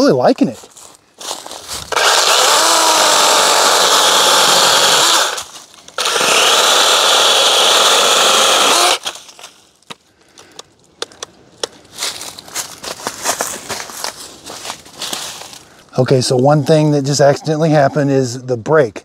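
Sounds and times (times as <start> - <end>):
chainsaw cutting branch: 1.9 - 9.3.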